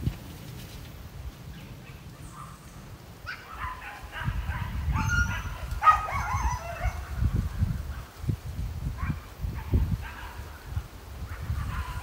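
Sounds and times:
dogs yelping and barking: 1.8 - 7.2.

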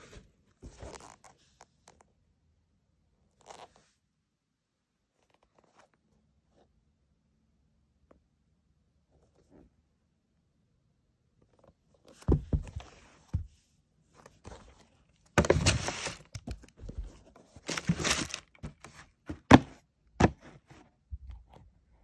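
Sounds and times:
thumps from handling shoebox: 12.2 - 13.5, 15.4 - 20.7
tissue paper rustling: 17.6 - 18.8.

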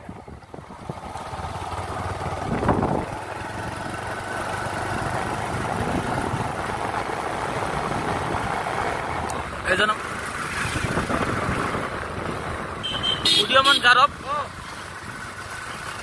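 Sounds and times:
wind rush on microphone: 0.0 - 3.2, 5.2 - 9.7, 10.4 - 12.6
motorcycle engine riding: 0.0 - 16.0.

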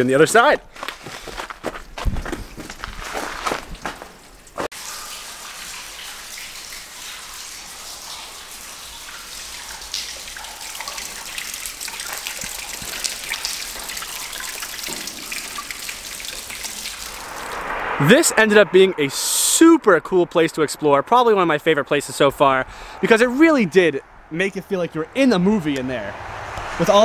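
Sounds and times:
water trickling: 2.2 - 17.5
water drips: 2.2 - 17.6.

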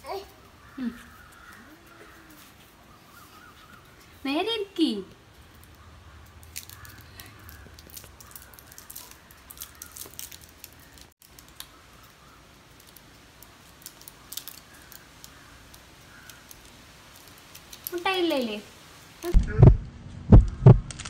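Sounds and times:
plastic wrapper crinkling: 6.4 - 18.6.

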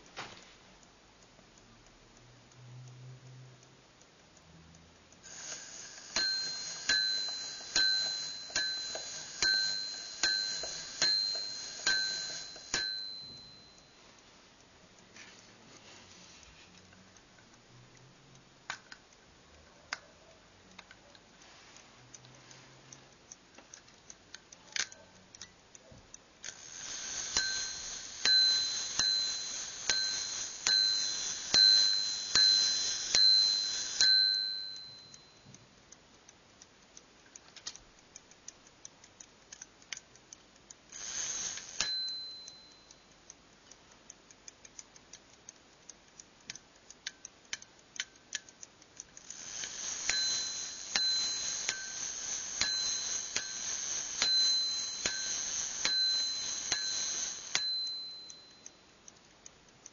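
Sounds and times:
pocket watch ticking: 0.8 - 15.5, 16.1 - 59.9
watch bell ringing: 5.3 - 14.1, 26.5 - 35.5, 40.9 - 43.1, 49.3 - 59.0.

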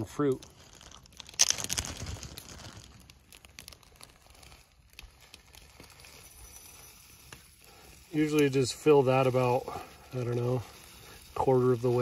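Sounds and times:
plastic packaging crinkling: 0.0 - 9.3.

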